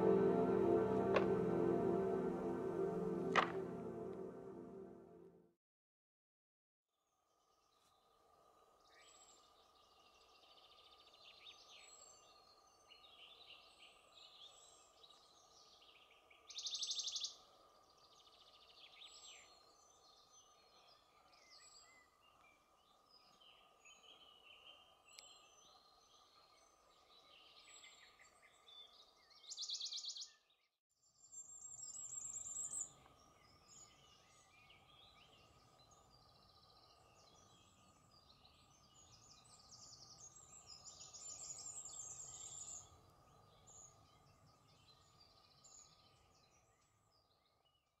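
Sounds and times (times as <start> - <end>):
faint steady tone: 0.0 - 5.3.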